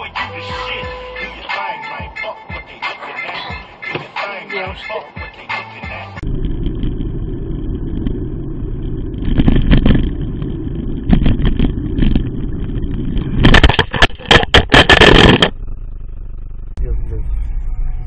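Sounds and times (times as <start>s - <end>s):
vehicle road rumble: 2.4s - 18.0s.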